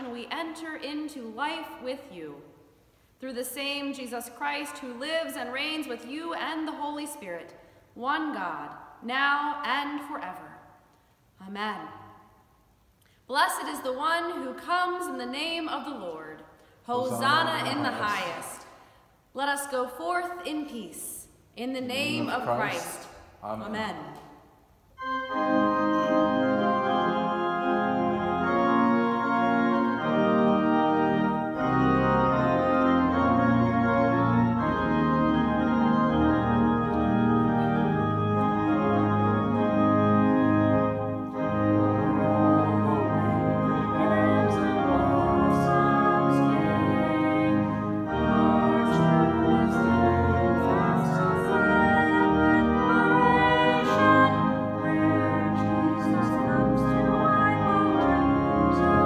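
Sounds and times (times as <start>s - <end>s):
church organ playing slow chords: 17.0s - 18.4s, 21.9s - 22.8s, 25.0s - 59.0s.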